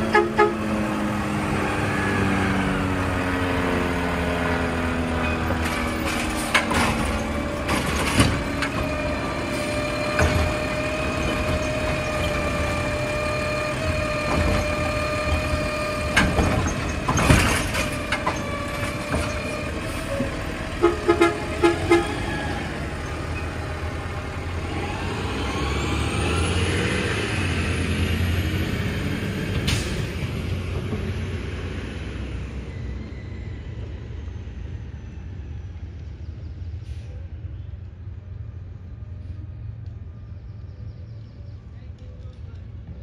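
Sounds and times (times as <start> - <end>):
horn toots: 0.0 - 0.8, 20.1 - 22.5
truck engine pulling away: 0.0 - 40.0.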